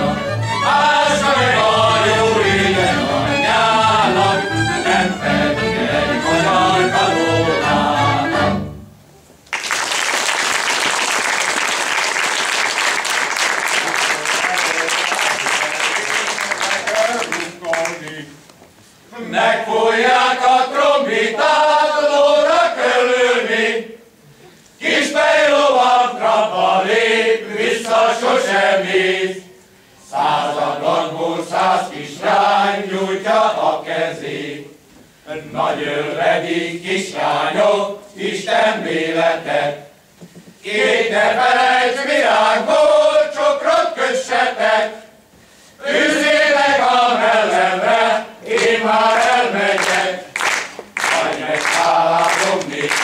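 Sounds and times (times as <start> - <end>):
men's choir singing folk song: 0.0 - 8.7, 19.1 - 24.0, 24.8 - 45.1, 45.8 - 53.0.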